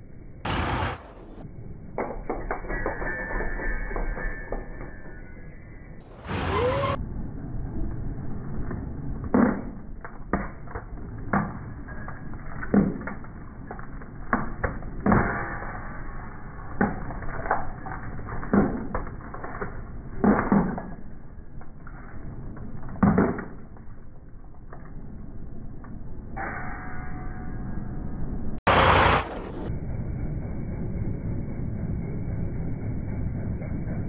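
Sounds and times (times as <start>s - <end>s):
packets popping under wheels: 9.2s - 25.0s.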